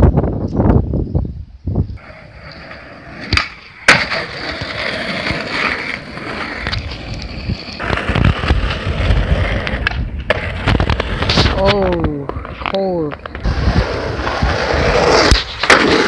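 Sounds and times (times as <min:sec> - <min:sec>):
skateboard wheels rolling on asphalt: 0:00.0 - 0:16.0
skateboard clacks: 0:03.2 - 0:13.5, 0:15.1 - 0:16.0.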